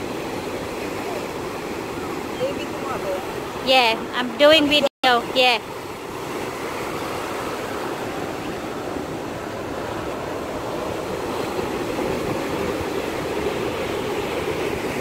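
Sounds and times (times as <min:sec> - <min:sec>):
waves washing over sand and rocks: 0:00.0 - 0:15.0.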